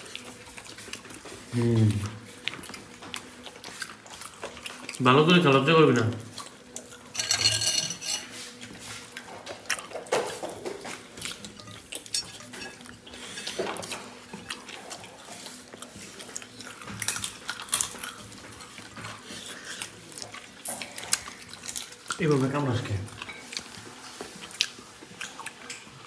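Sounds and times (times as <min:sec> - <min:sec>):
wet sounds of eating by hand: 0:00.0 - 0:26.0
spoons clinking on ceramic plates: 0:07.1 - 0:08.4, 0:10.0 - 0:15.0.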